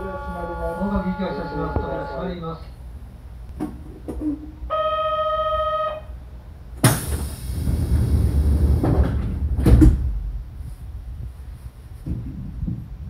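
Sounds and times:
train door warning buzzer: 0:00.0 - 0:02.3, 0:04.7 - 0:06.1
pneumatic hiss of air: 0:06.8 - 0:07.9
doors shutting thuds: 0:06.8 - 0:10.4.

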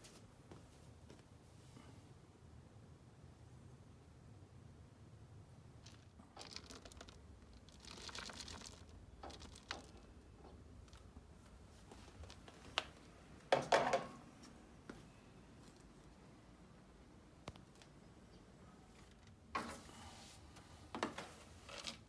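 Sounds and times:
litter pellets rustling and crunching: 0:05.8 - 0:13.2.

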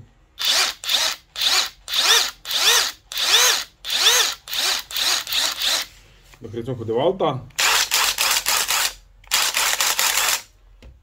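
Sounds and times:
impact driver motor revving: 0:00.4 - 0:05.9, 0:07.6 - 0:10.5.

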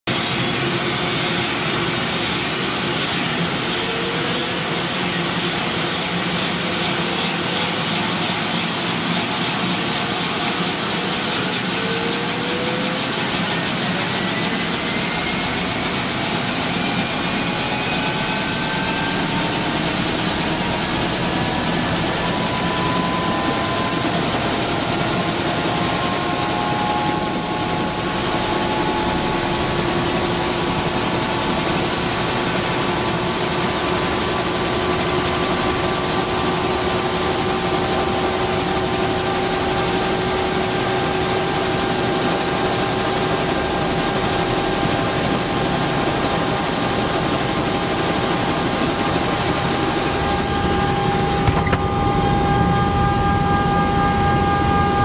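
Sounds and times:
helicopter engine and rotor: 0:00.0 - 0:55.0.

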